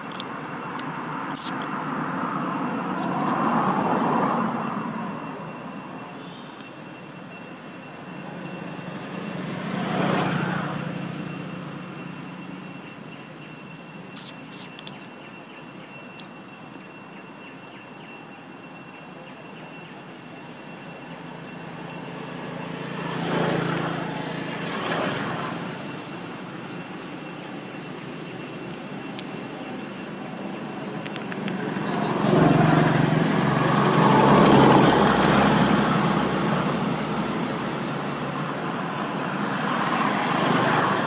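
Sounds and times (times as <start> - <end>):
vehicles passing: 0.0 - 6.3, 8.2 - 12.7, 21.2 - 41.0
faint high-pitched tone: 0.3 - 24.1
sharp clicks: 3.0 - 3.4, 14.2 - 15.2.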